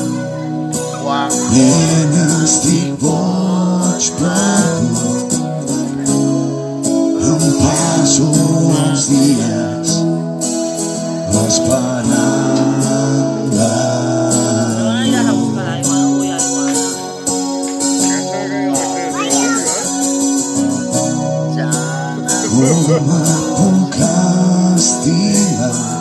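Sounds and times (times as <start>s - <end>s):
acoustic guitar playing: 0.0s - 26.0s
person singing through pa: 1.1s - 5.2s, 7.2s - 10.0s, 11.2s - 16.2s, 21.7s - 26.0s.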